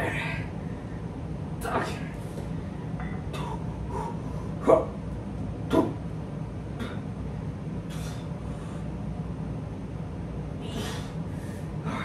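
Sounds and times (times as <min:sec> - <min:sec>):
steady low hum: 0:00.0 - 0:12.0
man grunting: 0:04.6 - 0:05.0, 0:05.7 - 0:06.0.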